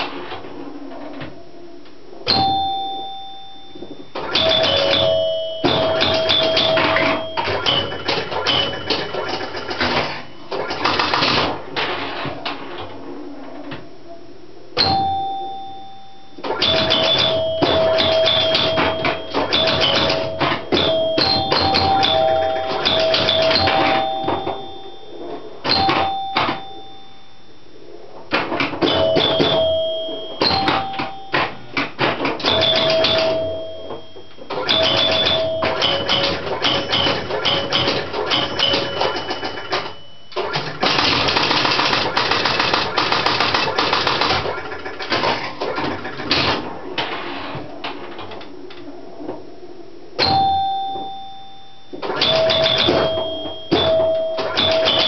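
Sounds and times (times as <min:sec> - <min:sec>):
pinball scoring chimes: 0:02.2 - 0:12.9, 0:14.8 - 0:27.5, 0:28.2 - 0:48.5, 0:50.2 - 0:55.0
rapid clatter of relay clicks: 0:34.6 - 0:46.6.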